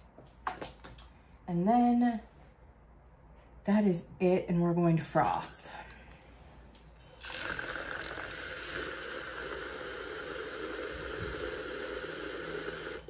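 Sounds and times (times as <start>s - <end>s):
electric milk frother whisking: 7.0s - 13.0s.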